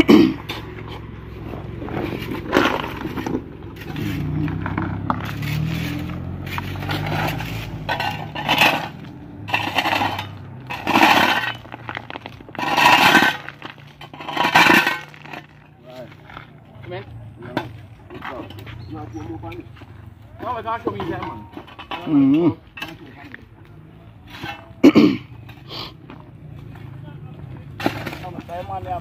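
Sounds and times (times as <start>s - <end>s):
shovels scraping gravel: 0.0s - 26.9s, 27.7s - 29.0s
car engine humming: 0.0s - 29.0s
rocks clinking: 0.1s - 16.5s.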